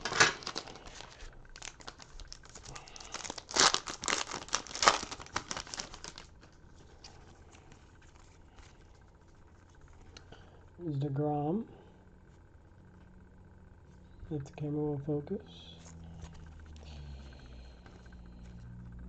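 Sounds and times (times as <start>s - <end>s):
plastic wrapper tearing and crinkling: 0.0s - 6.5s
light handling of cards: 0.0s - 10.4s, 15.7s - 18.9s.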